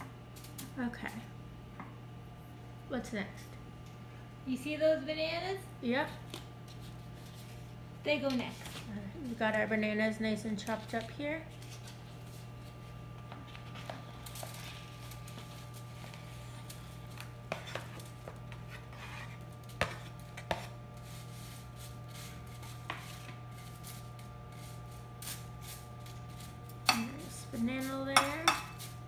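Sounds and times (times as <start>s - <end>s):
low background hum: 0.0s - 29.0s
knife scraping a plate: 17.5s - 23.8s.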